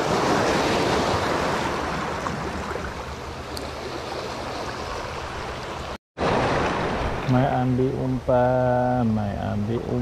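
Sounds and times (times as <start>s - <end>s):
sea waves washing over rocks: 0.0s - 5.3s, 6.2s - 7.5s.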